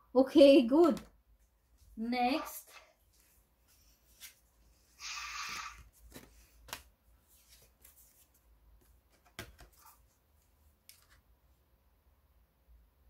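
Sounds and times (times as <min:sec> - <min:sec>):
paper card rustling: 0:05.7 - 0:11.3.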